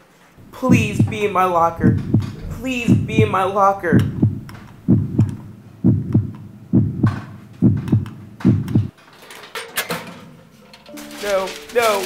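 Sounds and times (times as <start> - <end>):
heartbeat thumps: 0.4 - 8.9.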